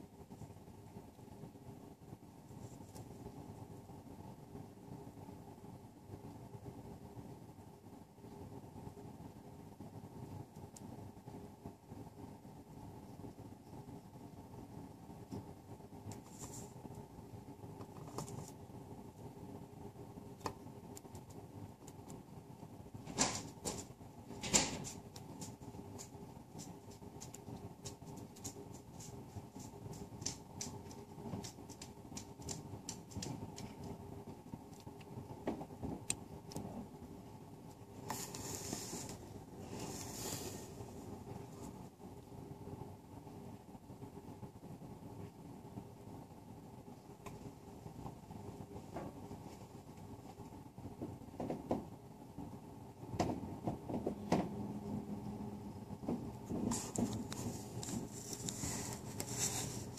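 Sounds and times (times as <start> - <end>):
low room hum: 0.0 - 59.9
small clicks and ticks: 20.4 - 22.3, 24.5 - 35.3
hissy rustle: 37.9 - 42.0, 56.4 - 59.9
phone rustling: 56.6 - 59.9.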